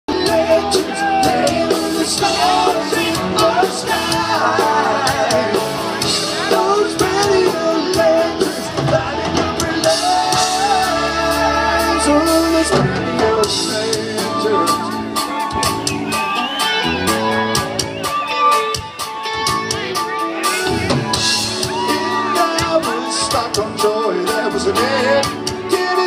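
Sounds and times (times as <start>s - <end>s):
man singing: 0.1s - 15.6s, 21.7s - 26.0s
distant live rock band: 0.1s - 26.0s.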